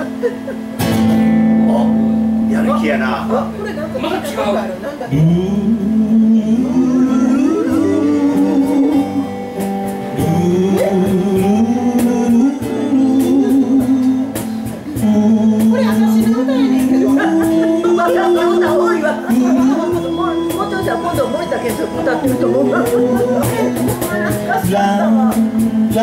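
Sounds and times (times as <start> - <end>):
acoustic guitar: 0.0 - 26.0
man singing into microphone: 5.1 - 9.4, 10.0 - 26.0.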